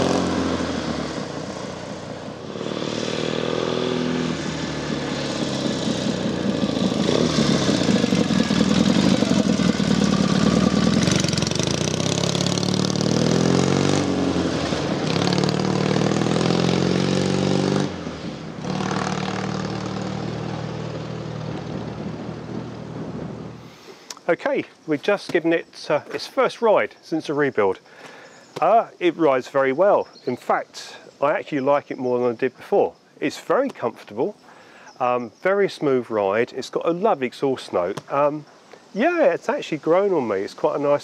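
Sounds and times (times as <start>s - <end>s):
motorcycle accelerating through gears: 0.0s - 23.6s.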